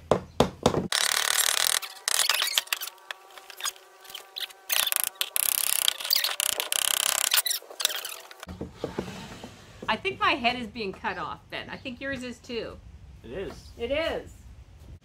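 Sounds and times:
wood pieces and tools rattling: 0.9s - 10.0s.

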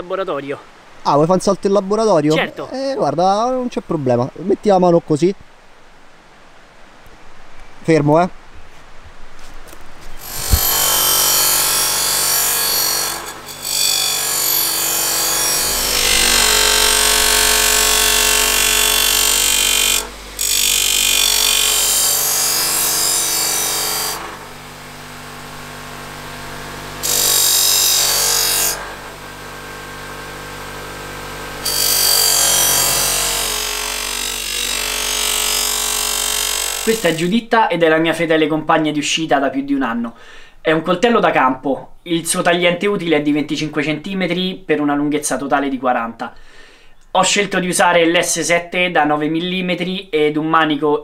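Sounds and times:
bench grinder motor hum: 10.2s - 37.2s
knife grinding on wheel: 10.2s - 37.2s.

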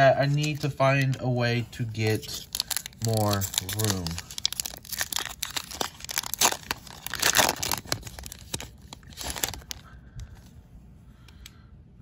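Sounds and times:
foil wrapper tearing and crinkling: 2.0s - 9.9s.

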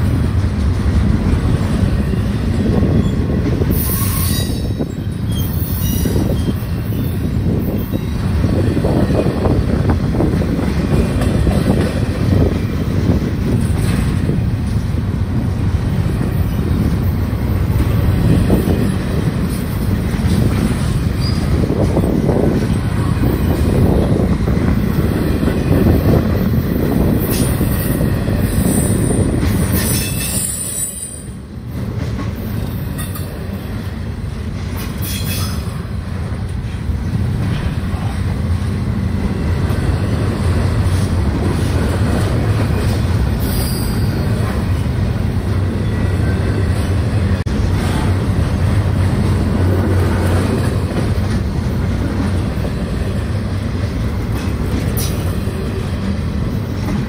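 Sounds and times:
train wheels rumbling on rail: 0.0s - 57.0s
high-pitched wheel squeals: 3.8s - 8.2s, 21.2s - 21.6s, 43.4s - 44.5s.

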